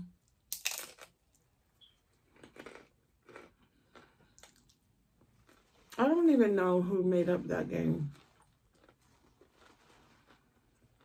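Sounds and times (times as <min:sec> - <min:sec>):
crunchy chewing: 0:02.1 - 0:06.0, 0:08.1 - 0:11.0
crunchy bite into taco: 0:02.2 - 0:04.8, 0:08.2 - 0:11.0.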